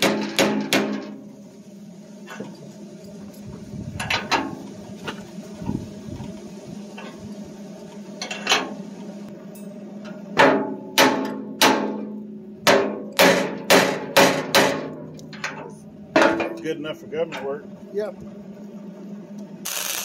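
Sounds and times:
hammer striking steel: 0.0s - 1.2s, 10.4s - 16.7s.

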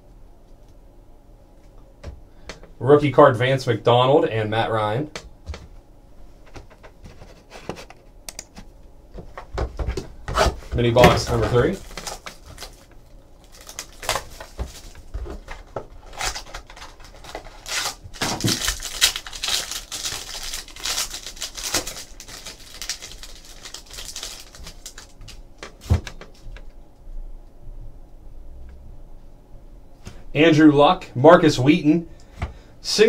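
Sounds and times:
foil wrapper crinkling and tearing: 11.1s - 26.5s.

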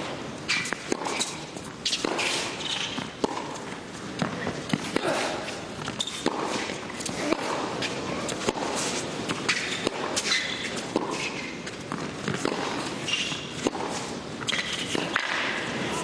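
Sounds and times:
rackets hitting tennis ball: 0.4s - 16.0s
ball bouncing on hard court: 0.6s - 5.1s, 11.9s - 15.6s.

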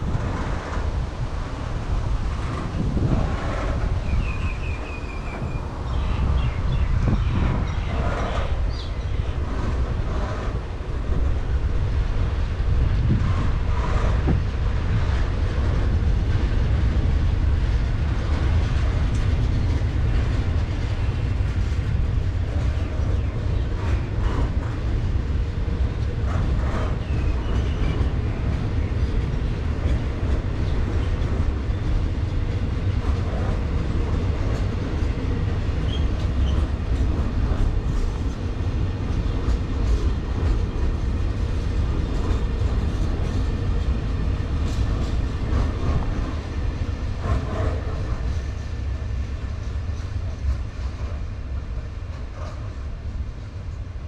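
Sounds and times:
rail clicks: 0.0s - 54.0s
train wheels rumbling on rails: 0.0s - 54.0s.

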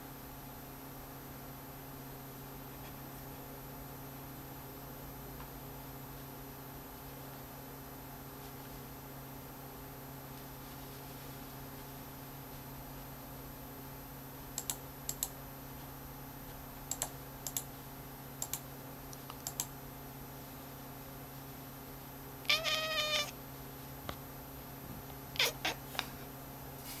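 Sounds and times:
computer clicks: 14.6s - 15.4s, 16.9s - 17.7s, 18.4s - 19.7s
cat meowing: 22.4s - 23.4s, 25.4s - 25.9s.

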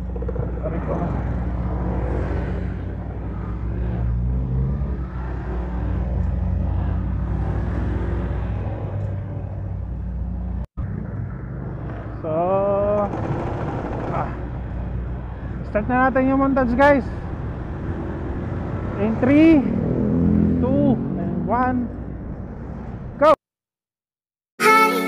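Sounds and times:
motorcycle engine running: 0.0s - 2.2s, 9.9s - 15.3s
wind and road noise: 0.0s - 23.4s
strong rising tone: 17.4s - 23.1s.

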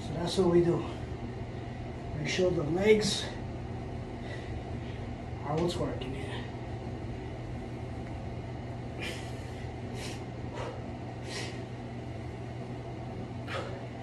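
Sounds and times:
steady low hum: 0.0s - 14.0s
man breathing out sharply: 9.0s - 11.7s.

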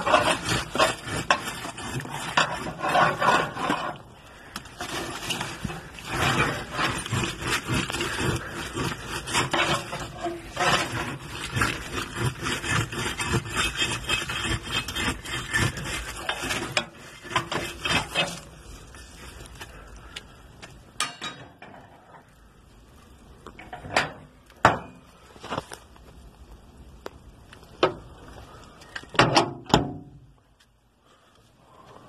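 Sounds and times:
metal poker scraping logs and grate: 0.0s - 22.4s, 23.5s - 25.7s.

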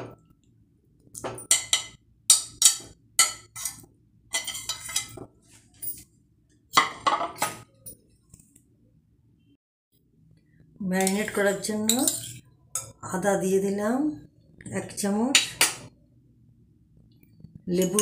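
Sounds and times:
knife scraping ceramic plate: 2.6s - 5.3s.

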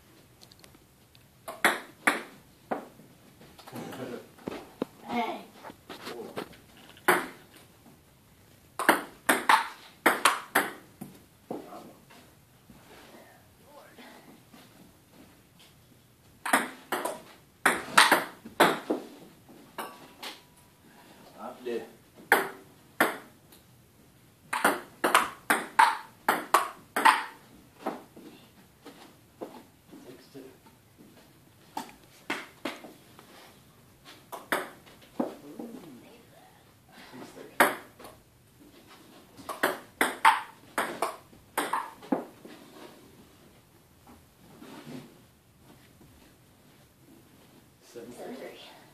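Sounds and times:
table tennis ball hits: 1.5s - 2.9s, 7.1s - 7.4s, 8.8s - 11.1s, 16.4s - 19.1s, 22.3s - 23.4s, 24.5s - 28.0s, 34.3s - 35.3s, 37.6s - 38.0s, 39.4s - 42.3s.

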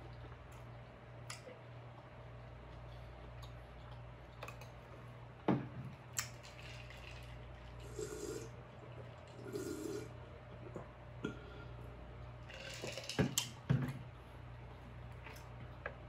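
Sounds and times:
gulps of water swallowed: 9.3s - 10.2s.

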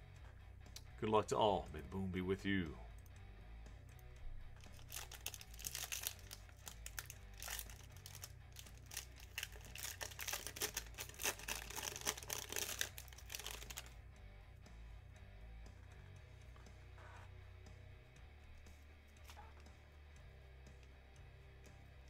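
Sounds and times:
foil pack tearing and crinkling: 4.7s - 13.9s.

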